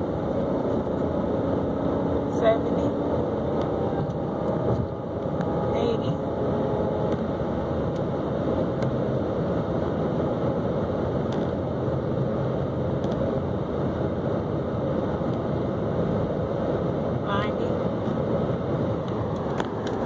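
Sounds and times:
car engine cruising: 0:00.0 - 0:20.0
road and tyre noise in car cabin: 0:00.0 - 0:20.0.

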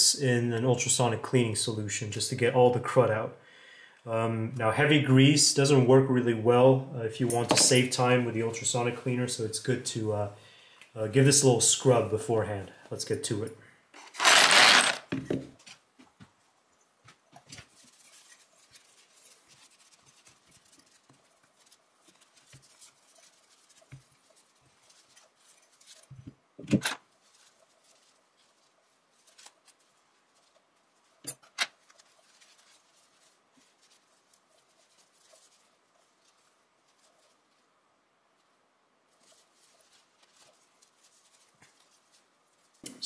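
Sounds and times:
cloth rubbing metal: 0:14.0 - 0:15.0.

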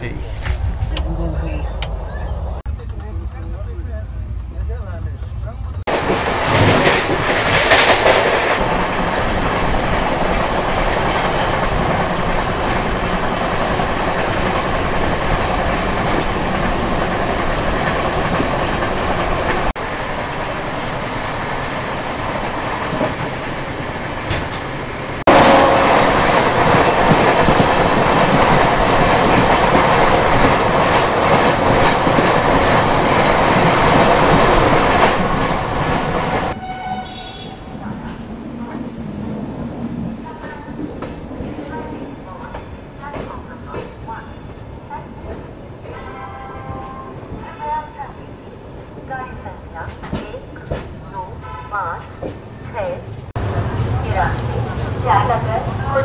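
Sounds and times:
train rumble: 0:00.0 - 0:56.0.

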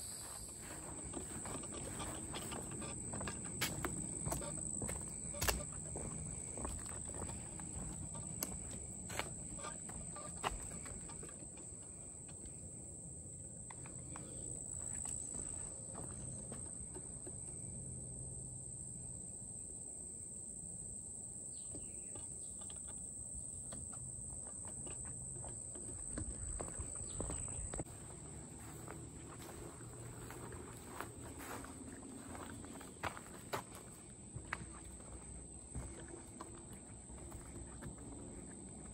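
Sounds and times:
high-pitched insect drone: 0:00.0 - 0:11.5.

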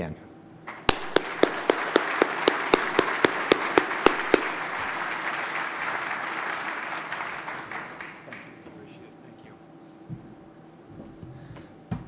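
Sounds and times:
audience applauding: 0:00.7 - 0:08.6
loud hand claps near microphone: 0:00.7 - 0:08.7.

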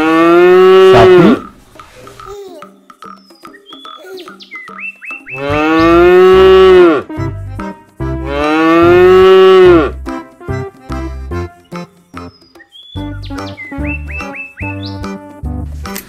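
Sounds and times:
cow mooing: 0:00.0 - 0:01.5, 0:05.3 - 0:07.0, 0:08.2 - 0:09.9
background tune with bouncing bass: 0:00.0 - 0:16.0.

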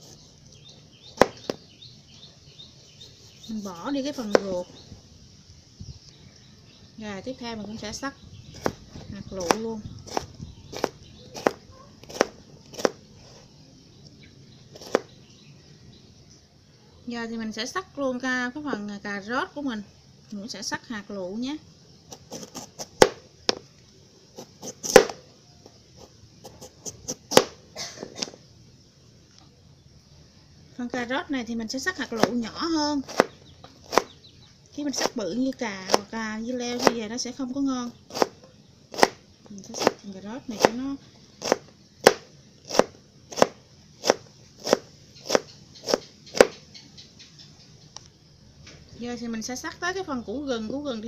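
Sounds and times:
knife chopping on cutting board: 0:04.2 - 0:04.5, 0:09.4 - 0:13.0, 0:14.8 - 0:15.1, 0:24.4 - 0:25.2, 0:32.2 - 0:32.4, 0:33.1 - 0:34.1, 0:36.8 - 0:37.0, 0:38.1 - 0:38.3, 0:38.9 - 0:40.0, 0:41.4 - 0:46.6.

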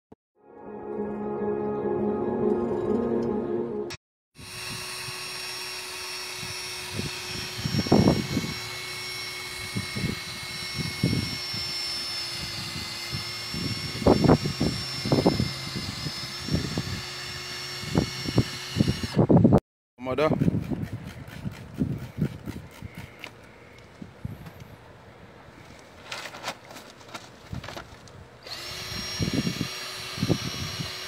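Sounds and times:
cordless drill polishing whine: 0:04.4 - 0:19.3, 0:28.4 - 0:31.0.

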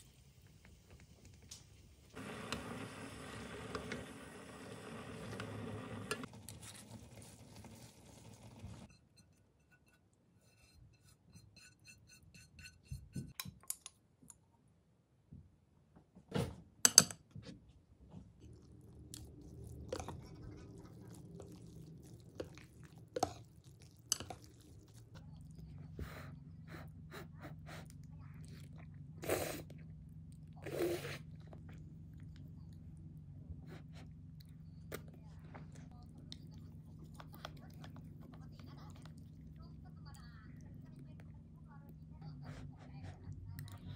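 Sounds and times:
person chewing: 0:18.5 - 0:25.6
utensils clicking on bowl: 0:23.2 - 0:24.6.

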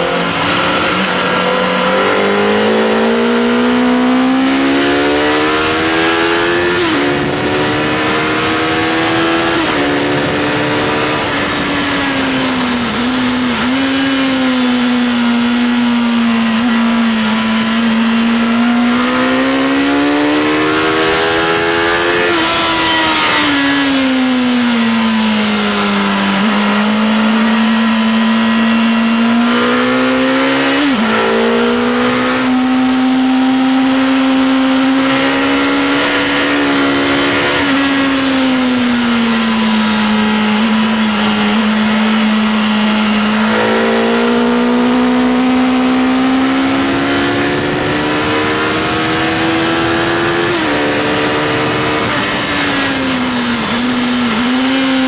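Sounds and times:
heavy wind noise: 0:00.0 - 0:55.0
motorcycle engine revving: 0:00.0 - 0:55.0.

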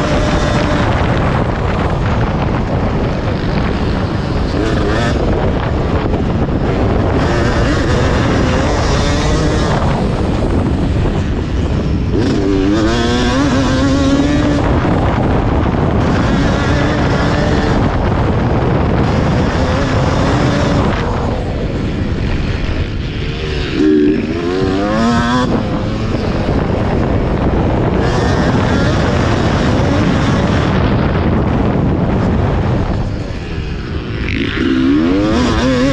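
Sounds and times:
two-stroke engine revving: 0:00.0 - 0:35.9.

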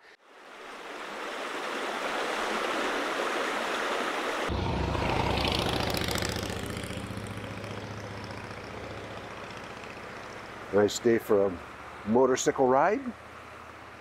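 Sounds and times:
stream running over rocks: 0:00.2 - 0:14.0
motorcycle engine on gravel: 0:04.5 - 0:11.0.

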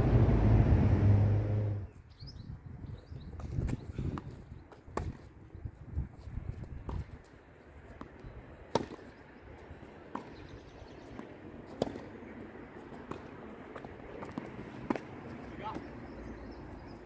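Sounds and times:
tennis ball bounces: 0:07.9 - 0:09.1, 0:10.1 - 0:16.0.

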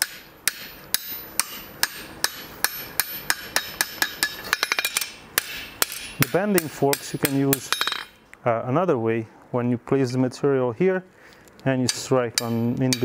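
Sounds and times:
hammer striking hot metal on anvil: 0:00.0 - 0:08.2, 0:11.9 - 0:13.0.

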